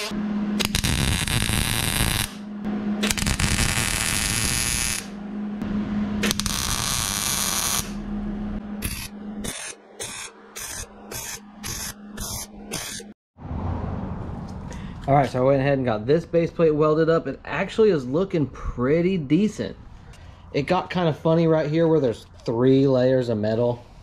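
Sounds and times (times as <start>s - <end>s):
welder arc crackling and hissing: 0.0s - 2.4s, 3.0s - 5.2s, 6.2s - 8.0s, 8.8s - 13.1s
steady low hum: 0.0s - 24.0s.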